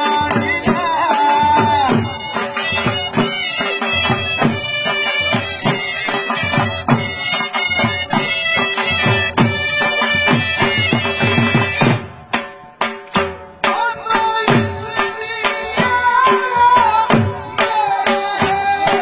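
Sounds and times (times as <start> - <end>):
dhol drum beating: 0.0 - 19.0.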